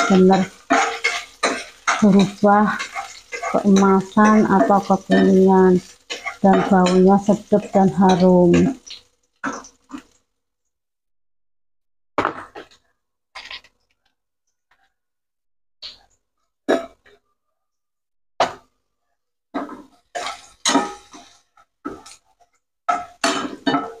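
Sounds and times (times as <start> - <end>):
spatula scraping and knocking wok: 0.0 - 10.2, 12.2 - 12.8, 19.6 - 24.0
garlic sizzling in hot oil: 0.0 - 10.4, 19.6 - 24.0.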